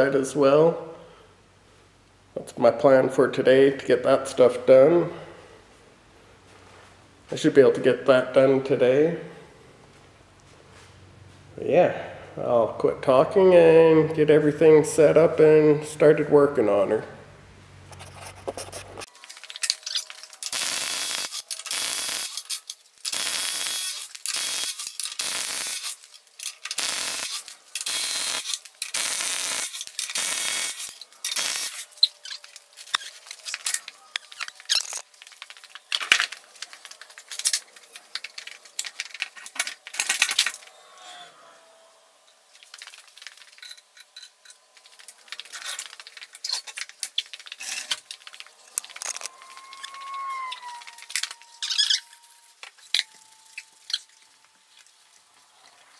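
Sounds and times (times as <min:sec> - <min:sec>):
impact wrench bursts: 0:20.4 - 0:32.4.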